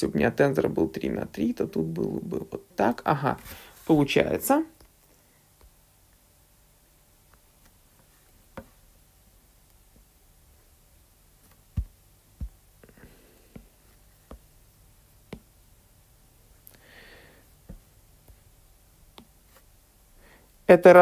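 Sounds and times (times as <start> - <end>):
stylus tapping on drawing tablet: 11.5 - 12.6, 15.2 - 15.6.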